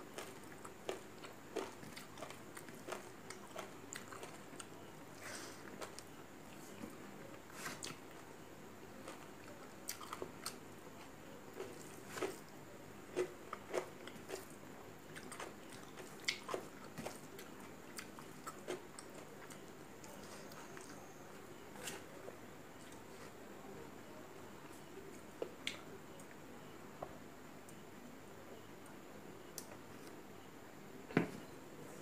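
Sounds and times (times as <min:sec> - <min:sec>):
chewing with mouth clicks: 0:00.1 - 0:04.9, 0:09.0 - 0:12.5, 0:13.1 - 0:21.0.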